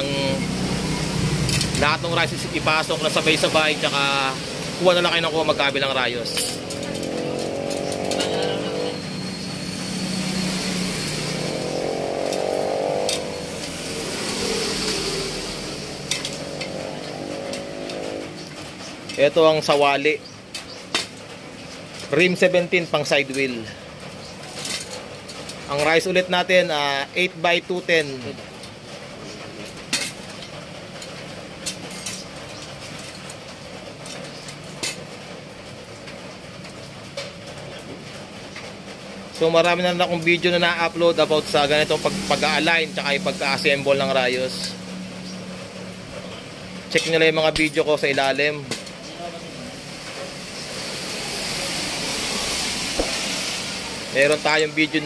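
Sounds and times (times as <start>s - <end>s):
vehicle engine running: 0.0s - 19.2s
metal spokes clinking against rim: 4.8s - 13.8s.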